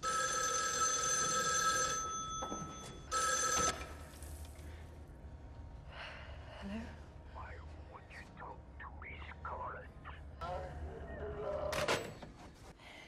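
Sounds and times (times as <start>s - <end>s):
telephone bell ringing: 0.0s - 4.2s.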